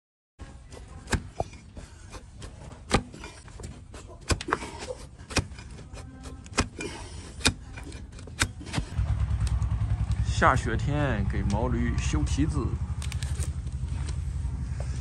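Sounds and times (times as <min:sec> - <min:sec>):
blade cutting hoof: 0:00.4 - 0:09.7.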